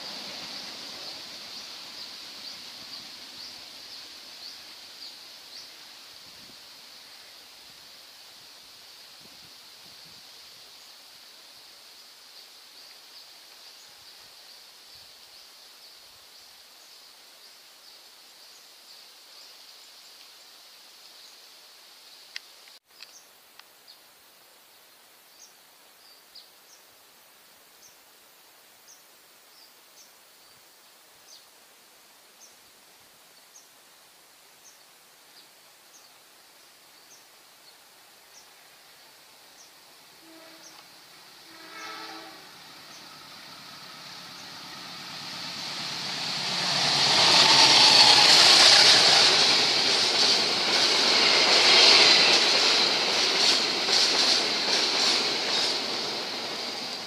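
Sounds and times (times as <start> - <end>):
high insect drone: 0.0 - 57.0
locomotive horn: 40.2 - 45.0.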